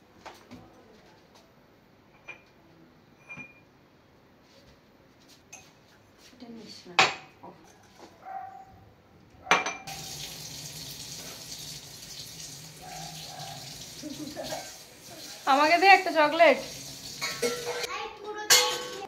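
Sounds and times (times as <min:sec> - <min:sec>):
crockery clattering: 0:17.0 - 0:17.9, 0:18.5 - 0:19.0.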